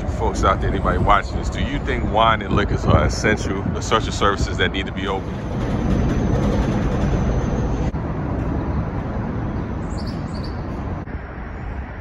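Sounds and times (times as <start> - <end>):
passing cars rumbling: 0.0 - 12.0.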